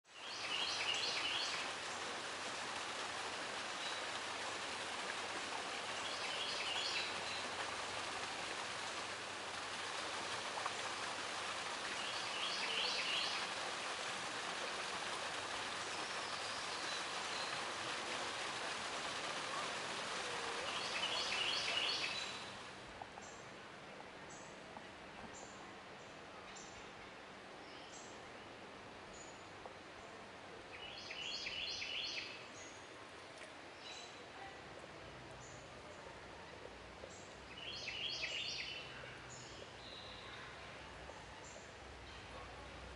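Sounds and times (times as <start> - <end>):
waterfall splashing into a pool: 0.2 - 22.9.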